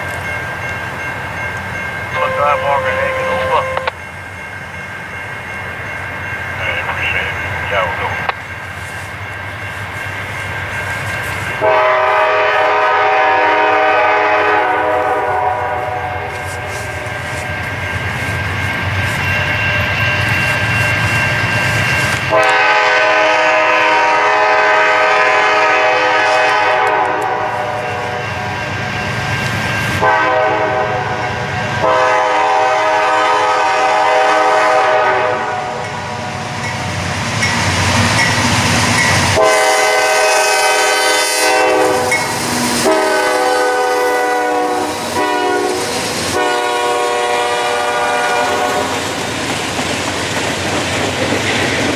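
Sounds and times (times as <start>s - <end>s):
locomotive horn blasts: 2.2s - 4.0s, 11.6s - 17.5s, 22.2s - 28.3s, 30.0s - 31.2s, 31.8s - 35.8s, 39.4s - 49.0s.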